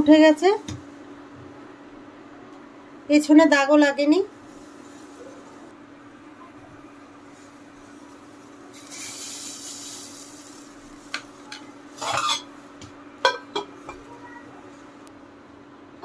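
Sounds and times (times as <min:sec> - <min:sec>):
steady low hum: 0:00.0 - 0:16.0
batter sizzling in hot pot: 0:04.2 - 0:05.7, 0:06.9 - 0:14.0.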